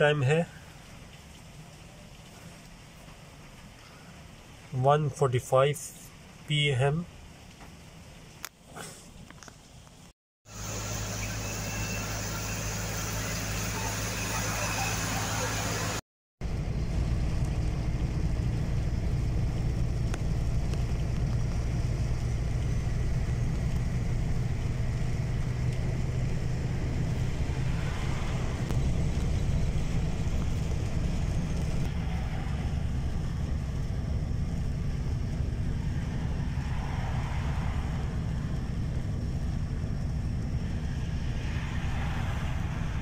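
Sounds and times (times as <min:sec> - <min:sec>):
car driving on wet road: 0:09.7 - 0:43.0.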